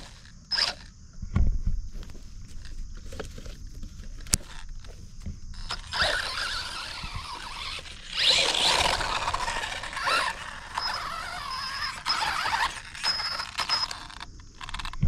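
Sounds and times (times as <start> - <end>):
electric motor whining: 0.0 - 0.9, 4.2 - 15.0
gear chatter: 2.5 - 15.0.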